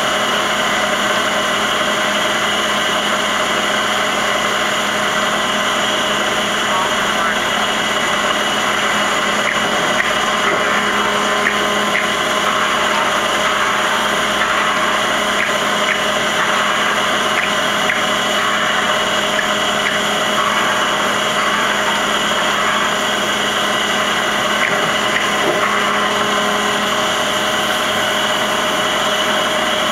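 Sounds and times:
coolant hissing: 0.0s - 29.9s
machine hum and whine: 0.0s - 29.9s.

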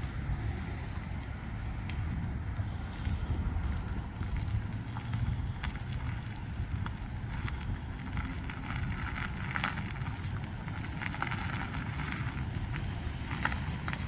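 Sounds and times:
car reversing rumble: 0.0s - 14.0s
tyres ticking over grit: 0.0s - 14.0s
wind on microphone: 0.0s - 14.0s.

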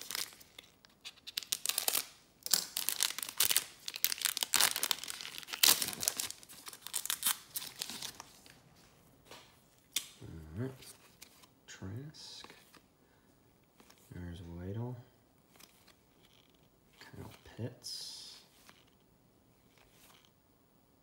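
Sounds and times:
foil wrapper crinkling: 0.0s - 8.3s.

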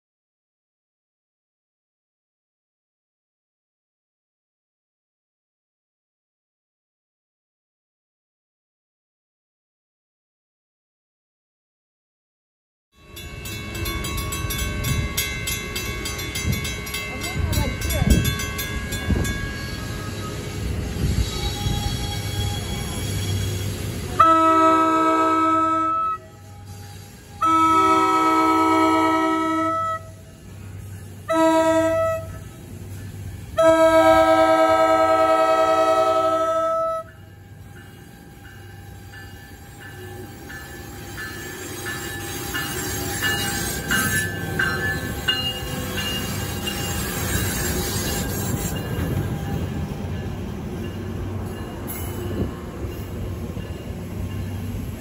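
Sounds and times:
crossing bell ringing: 13.0s - 24.1s, 37.0s - 55.0s
passenger train rumbling past: 13.0s - 55.0s
locomotive horn: 24.2s - 30.2s, 31.2s - 32.5s, 33.5s - 37.2s.

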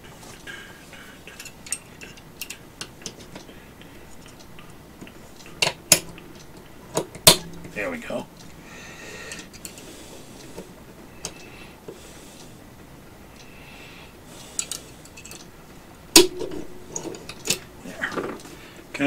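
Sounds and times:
sharp metal snap: 5.4s - 6.4s, 7.0s - 7.8s, 16.2s - 17.6s
metal parts sliding and rattling: 9.3s - 11.5s, 14.4s - 15.5s, 16.4s - 18.6s.

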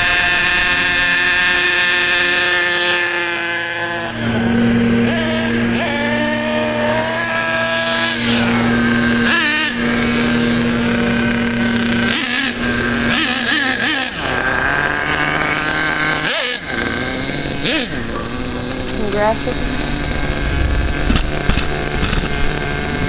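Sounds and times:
rc car engine revving: 0.0s - 23.0s.

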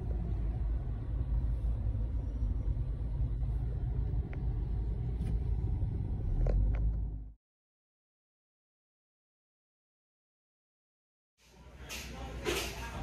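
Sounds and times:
car cabin rumble: 0.0s - 7.4s.

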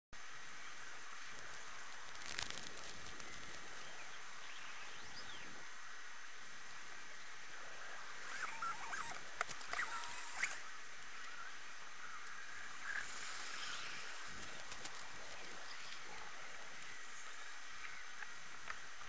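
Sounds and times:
steady background hiss: 0.2s - 19.0s
faint scratchy clicks: 1.2s - 4.1s, 8.3s - 11.5s, 12.1s - 19.0s.

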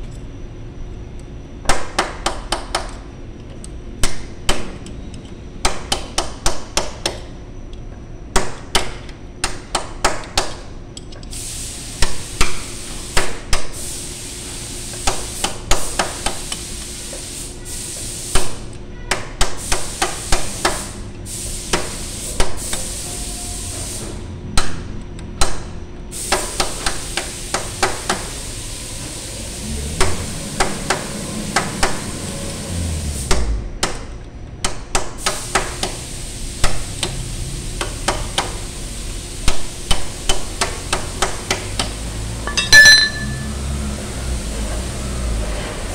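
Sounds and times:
hammer striking steel punch: 42.5s - 43.5s.

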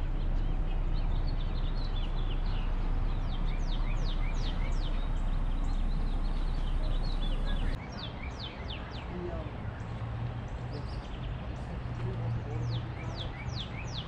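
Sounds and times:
steady low rumble: 0.0s - 7.9s
small birds chirping: 0.0s - 14.0s.

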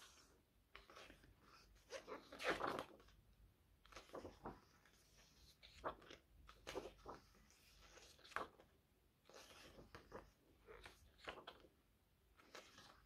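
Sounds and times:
book pages turning: 0.0s - 3.2s, 3.8s - 11.7s, 12.4s - 13.0s
paper rustling: 0.0s - 3.2s, 3.8s - 11.7s, 12.4s - 13.0s.

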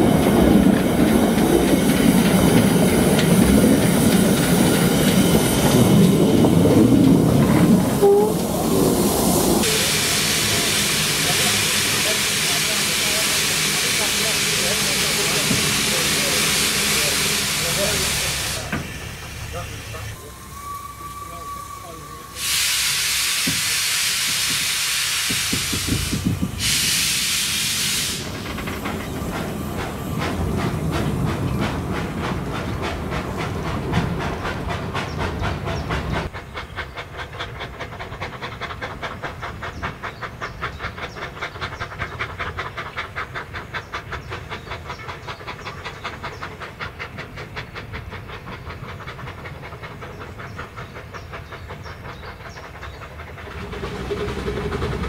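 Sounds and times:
wheels on rail joints: 0.0s - 11.6s, 25.3s - 55.0s
steam locomotive hissing: 0.0s - 55.0s
steam train exhaust beats: 0.0s - 55.0s.

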